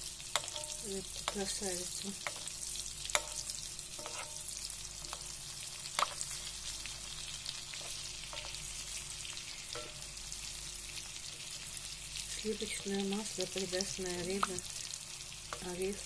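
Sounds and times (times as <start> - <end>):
fish sizzling in pan: 0.0 - 16.0
metal spoon clicking on pan: 0.3 - 1.5, 3.1 - 4.4.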